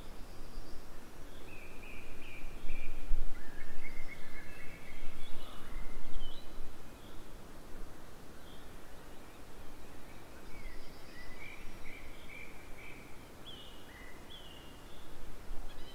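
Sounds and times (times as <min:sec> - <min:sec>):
birds whistling and trilling: 0:08.5 - 0:15.9.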